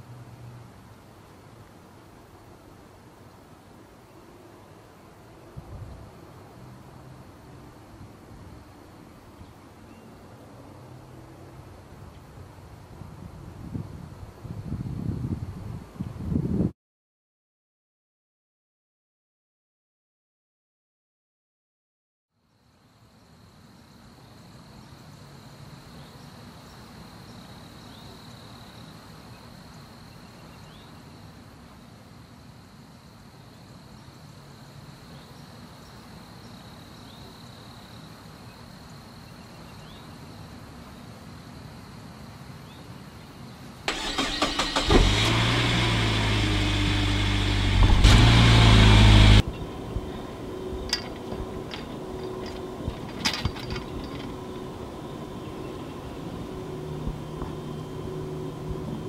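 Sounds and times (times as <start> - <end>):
outdoor ambience: 0.0 - 16.7, 22.3 - 59.0
loud steady engine: 44.2 - 59.0.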